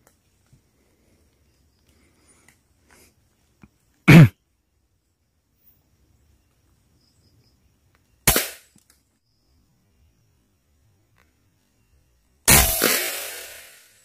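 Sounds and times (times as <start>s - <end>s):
air rifle shot: 8.3s - 8.6s, 12.5s - 14.0s.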